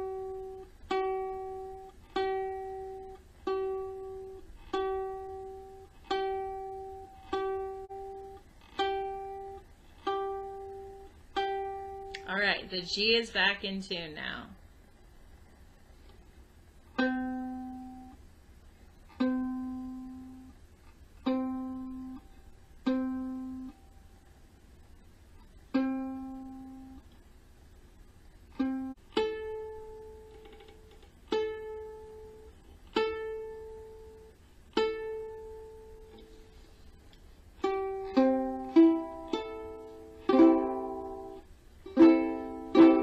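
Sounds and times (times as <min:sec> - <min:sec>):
ukulele strings plucked: 0:00.0 - 0:12.3, 0:17.0 - 0:18.2, 0:19.2 - 0:20.5, 0:21.2 - 0:23.8, 0:25.7 - 0:27.0, 0:28.6 - 0:36.4, 0:37.6 - 0:43.0.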